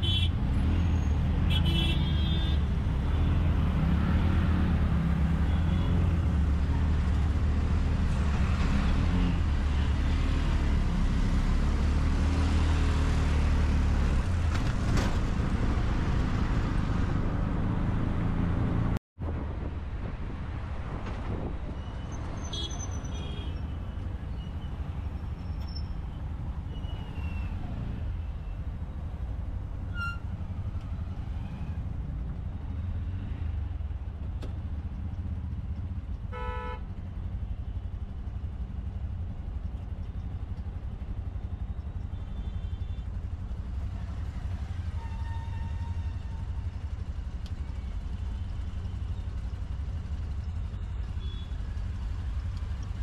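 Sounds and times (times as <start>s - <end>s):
low rumble of traffic engines: 0.0s - 53.0s
car horn blasts: 36.3s - 36.9s.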